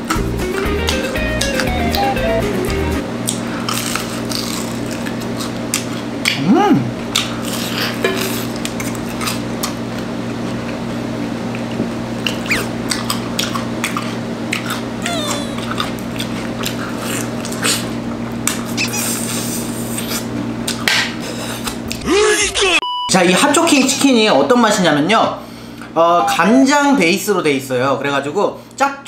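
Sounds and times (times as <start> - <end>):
person chewing and smacking: 0.0 - 2.4, 3.2 - 6.4, 7.1 - 10.8, 11.5 - 20.9.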